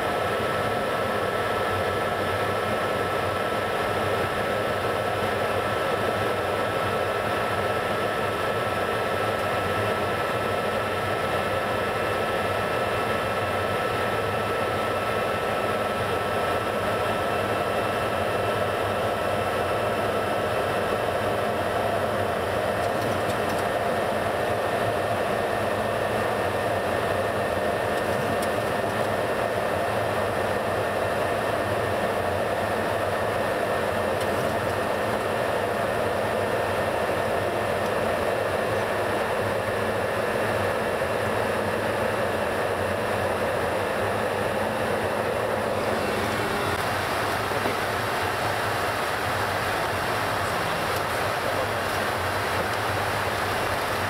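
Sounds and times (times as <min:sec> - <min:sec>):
jet engine and airflow rush: 0:00.0 - 0:54.0.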